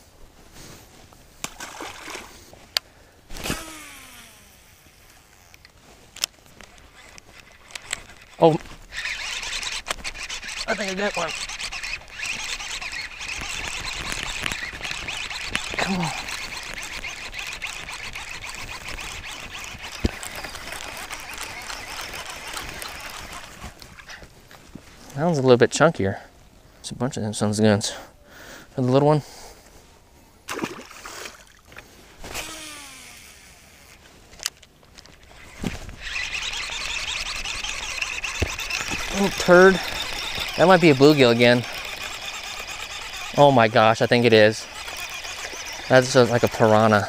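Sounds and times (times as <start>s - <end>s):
grass rustling: 0.0s - 25.2s, 29.4s - 47.0s
small splash: 1.4s - 2.4s, 30.5s - 31.8s
fishing reel spool whirring: 3.3s - 24.1s, 32.2s - 47.0s.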